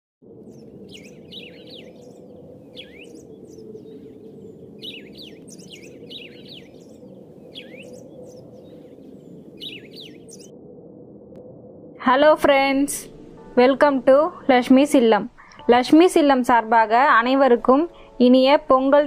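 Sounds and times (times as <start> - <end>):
birds chirping: 0.4 - 10.5.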